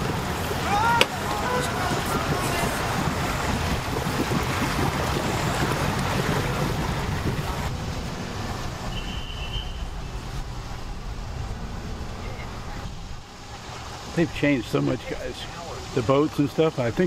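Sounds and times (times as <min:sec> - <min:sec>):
wind on microphone: 0:00.0 - 0:13.3
motorboat engine running: 0:00.0 - 0:16.1.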